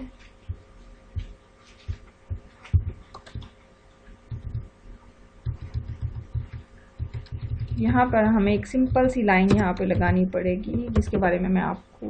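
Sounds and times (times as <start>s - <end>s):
computer keyboard and mouse clicks: 2.7s - 3.6s, 5.5s - 7.9s, 8.5s - 11.2s.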